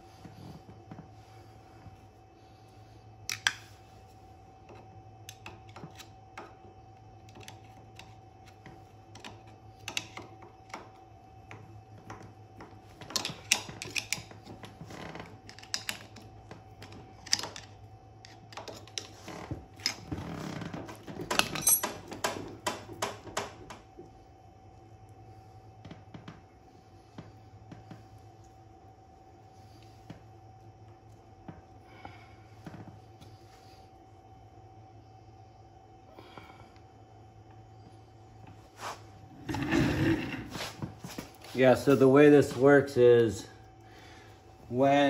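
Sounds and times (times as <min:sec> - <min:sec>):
faint steady hum: 0:00.0 - 0:45.0
metal parts clinking: 0:21.4 - 0:22.0.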